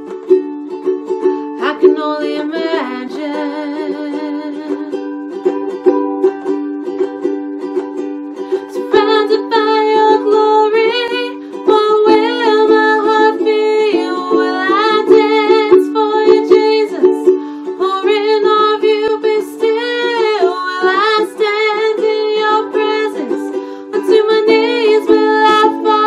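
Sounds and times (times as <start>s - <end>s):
ukulele strumming chords: 0.0s - 26.0s
woman singing: 1.5s - 5.2s, 8.6s - 26.0s.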